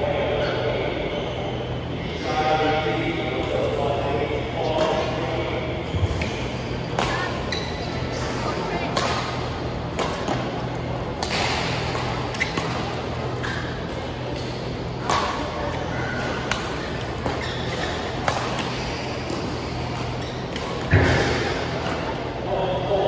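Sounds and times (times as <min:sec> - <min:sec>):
steady low hum: 0:00.0 - 0:23.0
rackets hitting shuttlecock: 0:08.9 - 0:10.6, 0:11.2 - 0:22.2.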